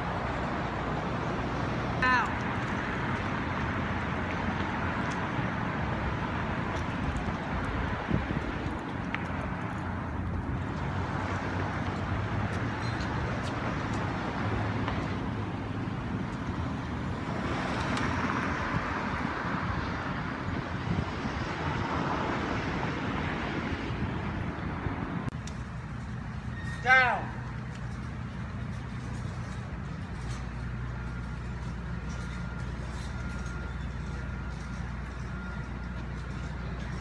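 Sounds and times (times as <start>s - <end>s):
city street traffic: 0.0s - 37.0s.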